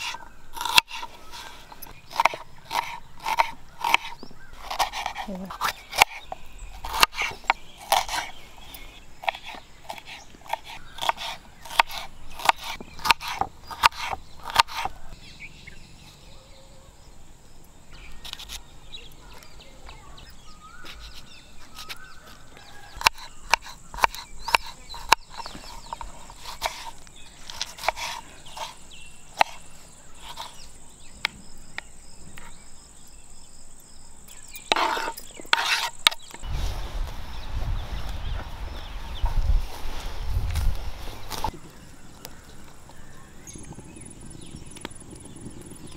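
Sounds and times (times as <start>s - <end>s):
knife scraping a board: 0.0s - 15.0s, 20.8s - 30.7s, 34.6s - 36.4s
knife chopping on wooden board: 2.1s - 8.3s, 9.2s - 15.0s, 22.7s - 28.8s.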